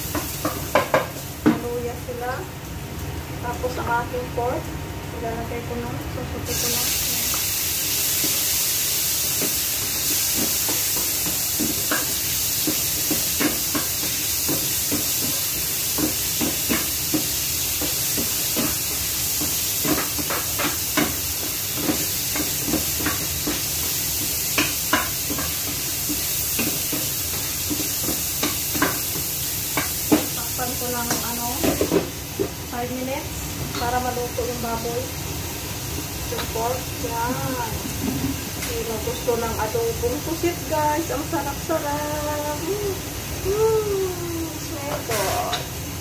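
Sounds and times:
food sizzling in hot oil: 0:00.0 - 0:46.0.

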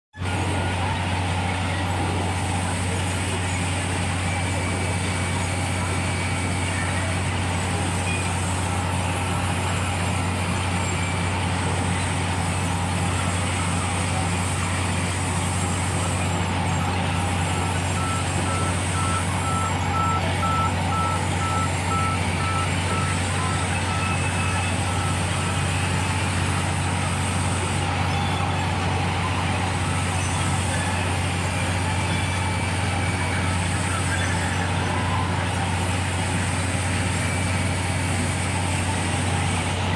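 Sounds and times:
sawmill machinery running: 0:00.2 - 0:39.9
short high beeps: 0:16.7 - 0:25.9.

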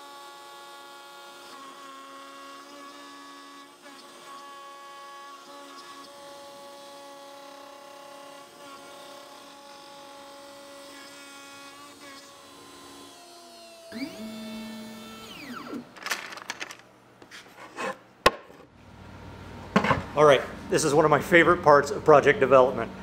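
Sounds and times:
router spindle whining: 0:00.0 - 0:16.0
sharp knocks on wood: 0:18.2 - 0:18.6.

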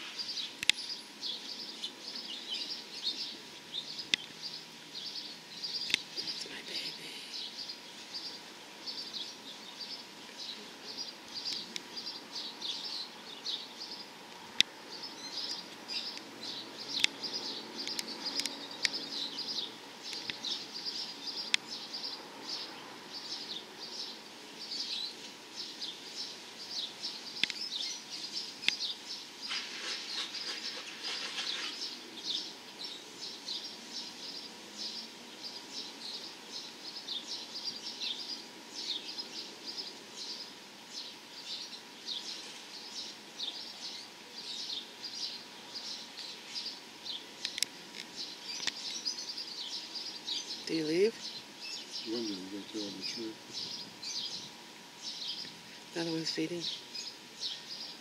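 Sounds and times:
small birds chirping: 0:00.0 - 0:58.0
sharp clicks: 0:17.8 - 0:19.0, 0:47.4 - 0:49.0.

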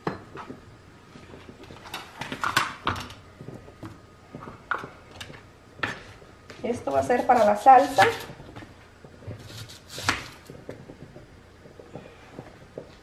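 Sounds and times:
kitchen items knocking and clattering: 0:01.2 - 0:06.2.

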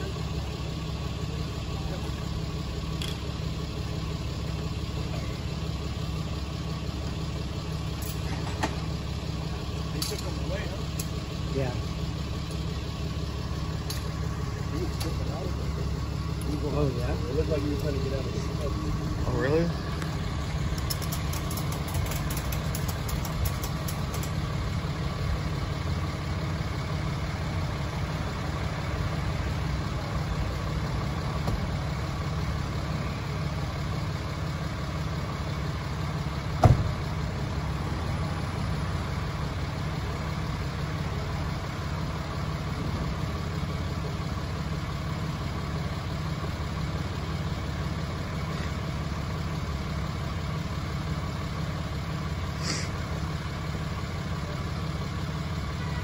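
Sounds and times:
truck engine idling: 0:00.0 - 0:56.0
sharp knock: 0:36.6 - 0:36.9.

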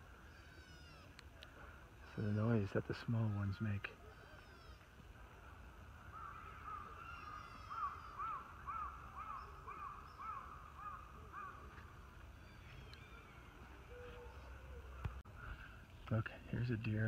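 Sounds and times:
deer squeaky calls: 0:00.2 - 0:01.2, 0:04.0 - 0:04.9, 0:06.8 - 0:08.4, 0:12.3 - 0:14.9.

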